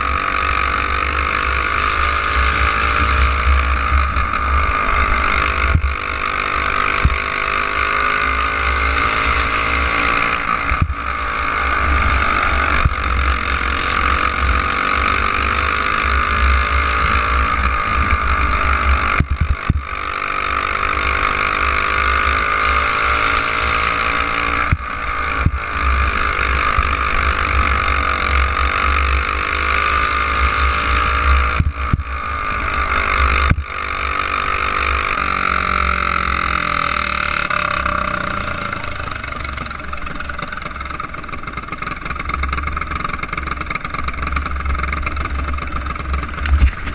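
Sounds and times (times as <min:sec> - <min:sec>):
kart engine running hard: 0:00.0 - 0:46.9
wind rumble on microphone: 0:17.6 - 0:19.9, 0:45.9 - 0:46.9.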